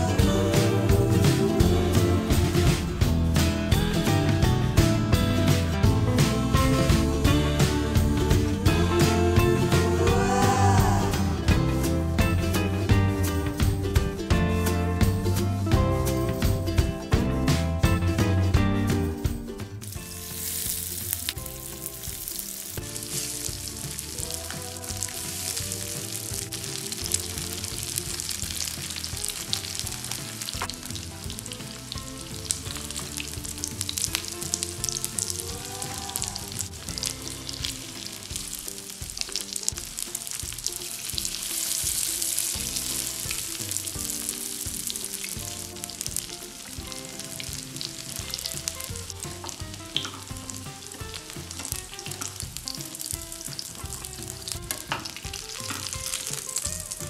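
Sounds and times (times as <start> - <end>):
cutlets sizzling in hot oil: 19.8 - 57.0.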